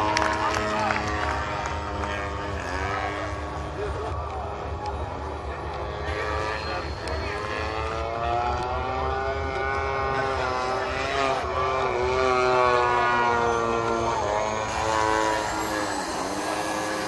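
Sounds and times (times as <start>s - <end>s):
model plane propeller engine: 0.0s - 17.0s.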